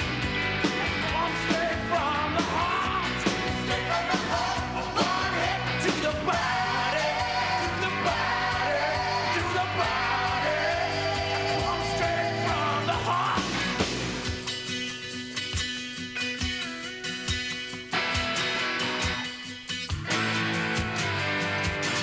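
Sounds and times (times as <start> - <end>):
rock song with singer: 0.0 - 22.0
steady drum beat: 0.0 - 22.0.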